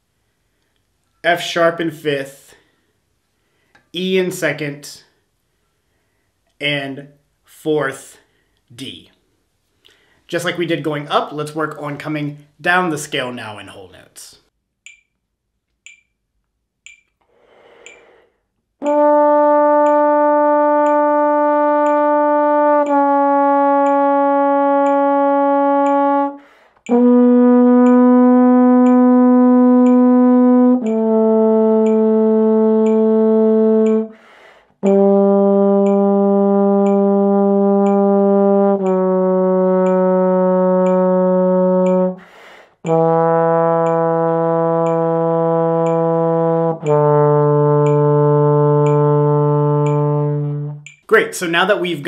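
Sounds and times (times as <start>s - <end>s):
person breathing: 2.5s - 3.9s, 5.5s - 6.4s, 8.2s - 8.7s, 9.8s - 10.3s, 17.2s - 18.5s, 26.4s - 26.8s, 34.2s - 34.8s, 42.2s - 42.8s
metronome clicking: 14.8s - 18.2s, 18.8s - 52.0s
trombone playing a scale: 18.8s - 52.0s.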